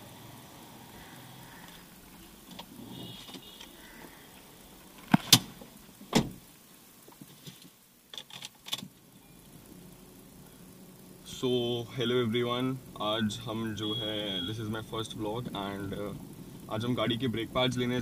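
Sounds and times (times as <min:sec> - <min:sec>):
car door shutting: 0:05.1 - 0:06.4.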